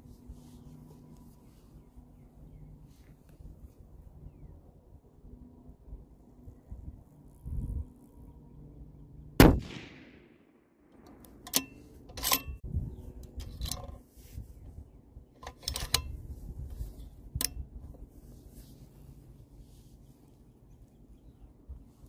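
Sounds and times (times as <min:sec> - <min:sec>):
rifle shot: 0:09.4 - 0:11.0.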